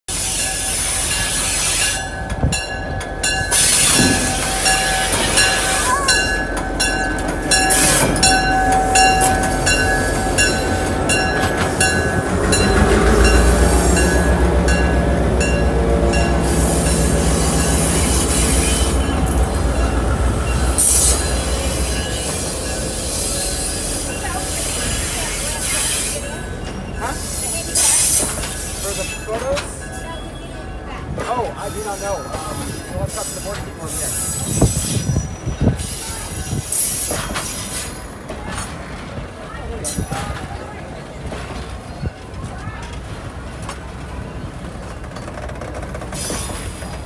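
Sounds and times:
train wheels squealing on rails: 0.1 - 38.9, 39.8 - 43.0, 43.6 - 47.0
deep locomotive engine rumble: 0.1 - 47.0.

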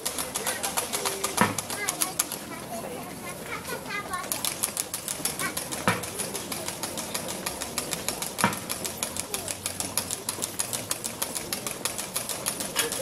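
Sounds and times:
rapid sharp high clicks: 0.0 - 2.6, 3.6 - 13.0
faint voices: 0.0 - 13.0
loud knock: 1.4 - 1.7.

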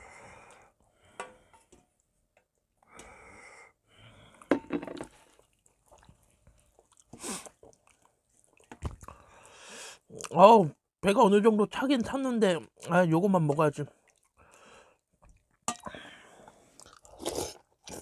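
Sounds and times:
breathing: 0.0 - 1.8, 2.9 - 4.6, 9.1 - 10.1, 14.4 - 15.1, 15.8 - 16.8
person chewing: 5.2 - 9.2, 15.3 - 18.0.

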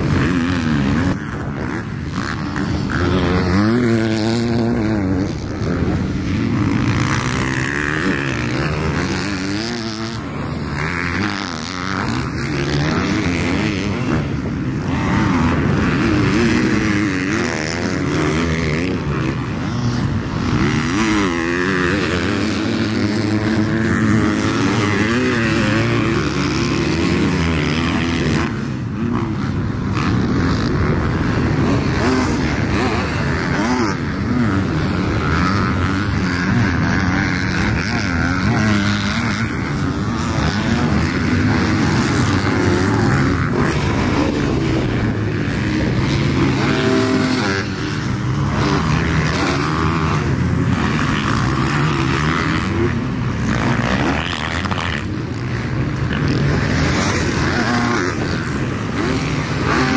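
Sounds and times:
motocross bike engine revving: 0.0 - 59.9.

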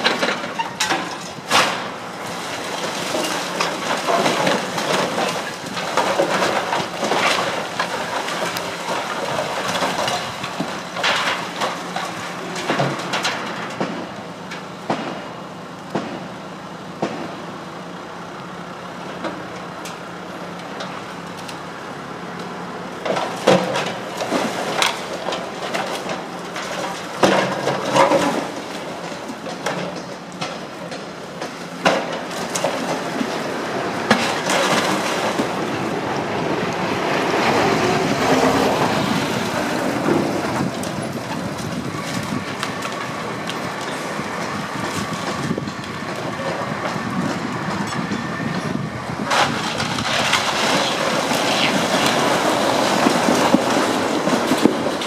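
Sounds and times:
rubble crashing down: 0.0 - 14.1, 31.8 - 35.8, 49.2 - 55.0
excavator engine running: 0.0 - 55.0.

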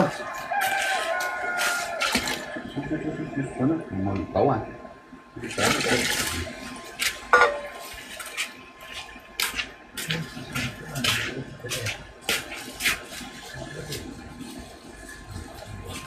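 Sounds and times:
water pouring into plastic bucket: 5.5 - 6.8.

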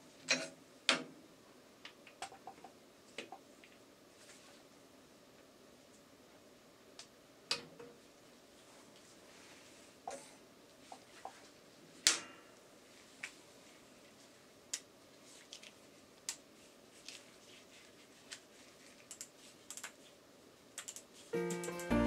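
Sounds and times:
music: 21.4 - 22.0.

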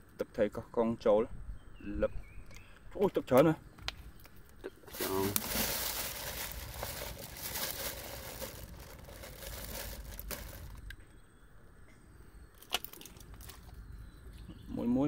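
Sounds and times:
plastic bags crinkling: 4.9 - 10.9.

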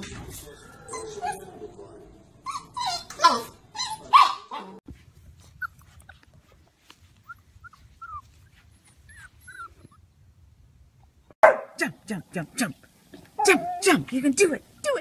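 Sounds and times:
puppies yelping and whining: 0.6 - 1.6, 2.4 - 4.6, 7.2 - 10.1.

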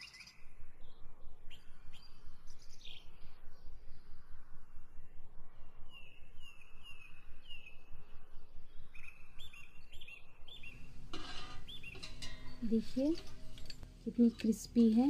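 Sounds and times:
birds chirping: 0.0 - 15.0
steady low rumble: 0.4 - 11.1.

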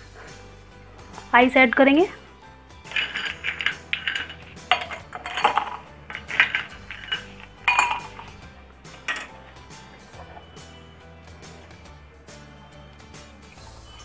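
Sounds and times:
ice clinking against glass: 2.9 - 9.4.

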